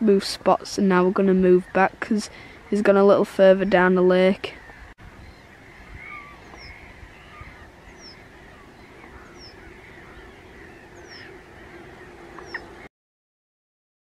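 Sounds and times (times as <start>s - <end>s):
low wind rumble: 0.0s - 12.9s
wavering bird calls: 3.6s - 12.9s
high falling bird call: 4.1s - 12.9s.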